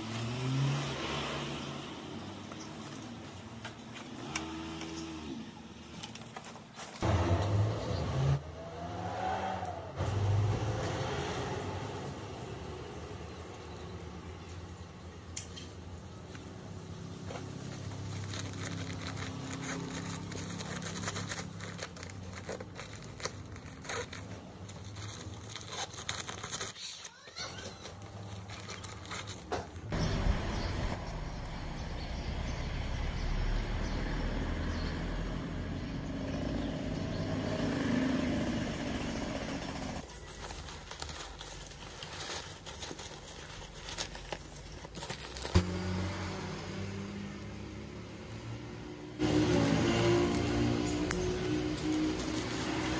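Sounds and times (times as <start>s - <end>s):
steady outdoor rumble: 9.6s - 26.8s, 27.6s - 52.9s
buckles and webbing clicking: 17.3s - 29.9s, 49.3s - 52.9s.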